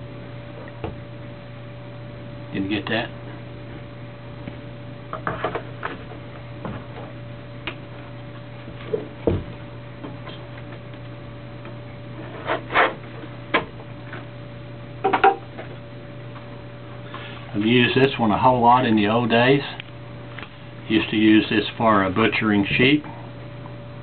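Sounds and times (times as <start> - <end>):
steady electrical hum: 0.0 - 24.0.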